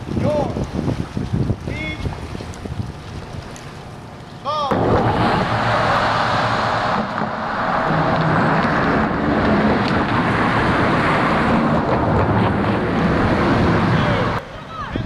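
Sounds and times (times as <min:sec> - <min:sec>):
road traffic passing: 0:03.3 - 0:15.0.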